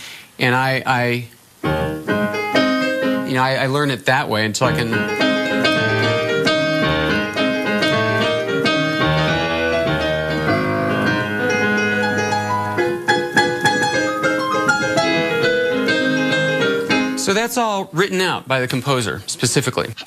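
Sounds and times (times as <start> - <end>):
piano playing chords and melody: 1.6 - 4.0, 4.6 - 17.6.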